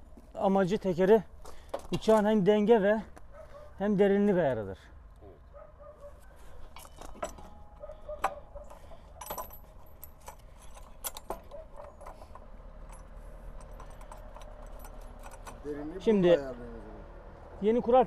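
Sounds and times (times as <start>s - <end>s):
metallic clicks and knocks: 6.7s - 15.9s.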